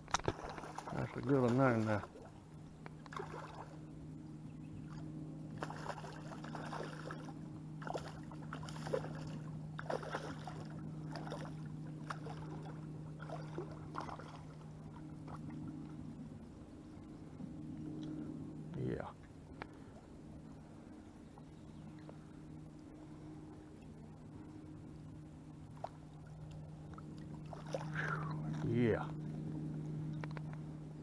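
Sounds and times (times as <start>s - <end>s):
fish splashing in water: 0.0s - 2.4s, 3.0s - 3.8s, 5.6s - 15.6s, 26.9s - 28.6s
steady low hum: 0.0s - 31.0s.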